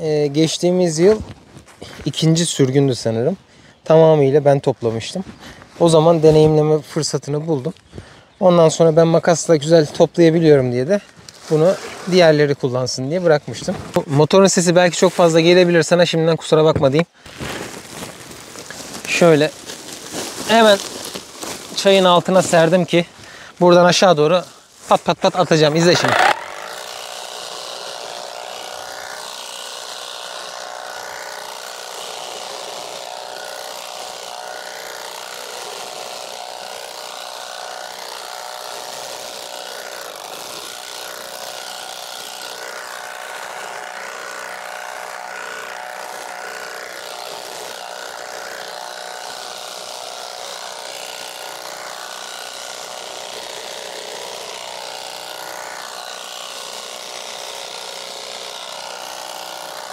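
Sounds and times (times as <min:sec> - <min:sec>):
electric tea-plucking machine running: 0:25.6 - 0:59.9.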